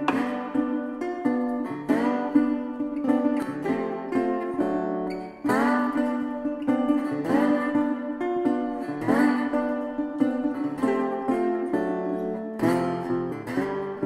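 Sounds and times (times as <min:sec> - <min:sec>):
acoustic guitar playing: 0:00.0 - 0:14.0.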